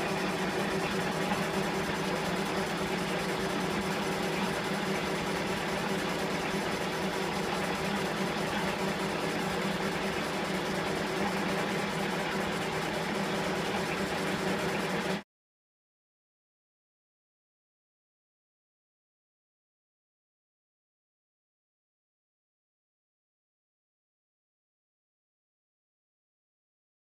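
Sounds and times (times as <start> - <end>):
metal lathe humming: 0.0 - 15.1.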